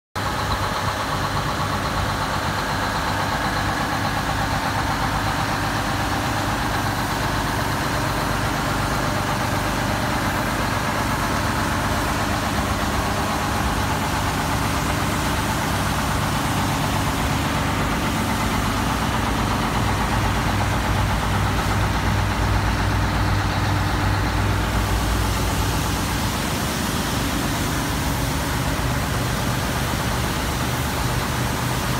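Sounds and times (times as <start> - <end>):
truck engine idling: 0.2 - 31.9.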